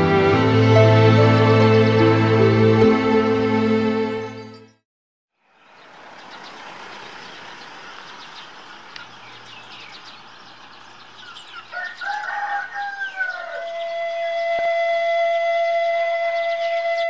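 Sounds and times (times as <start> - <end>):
small birds chirping: 5.4 - 14.6
rooster crowing: 11.6 - 14.4.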